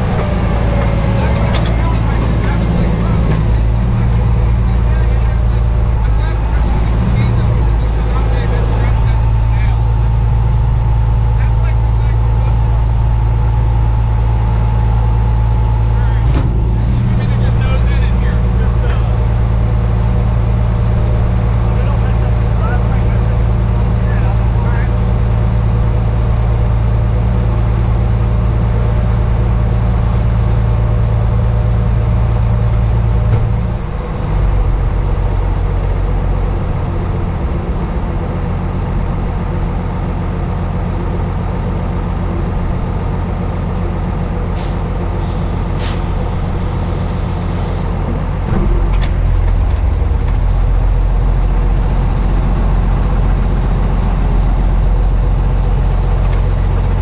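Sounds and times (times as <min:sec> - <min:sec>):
truck engine running: 0:00.0 - 0:57.0
air hiss: 0:44.6 - 0:47.9.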